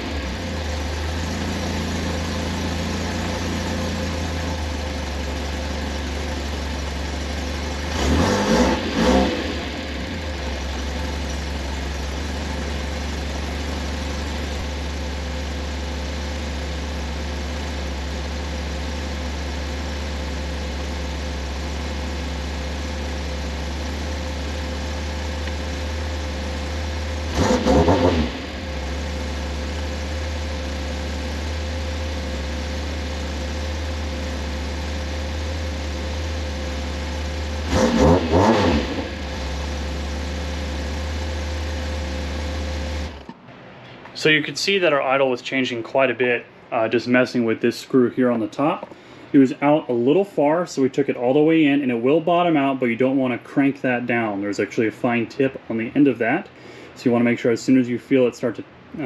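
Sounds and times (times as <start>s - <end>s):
engine revving: 0.0s - 43.4s
car engine idling: 0.0s - 47.0s.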